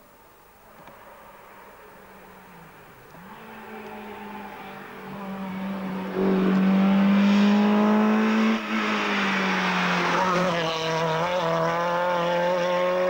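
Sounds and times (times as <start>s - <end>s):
rally car engine at high revs: 3.1s - 13.0s.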